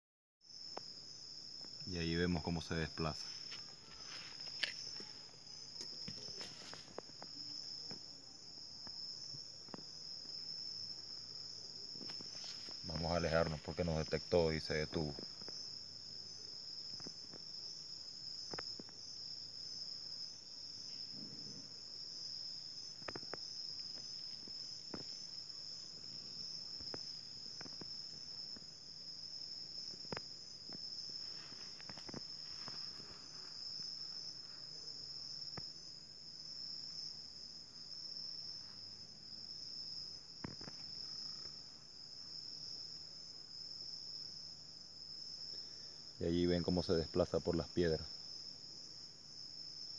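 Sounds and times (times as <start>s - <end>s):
night insects trilling: 0.5s - 49.9s.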